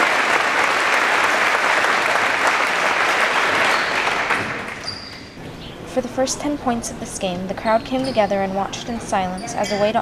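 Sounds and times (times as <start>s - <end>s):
crowd applauding: 0.0s - 4.9s.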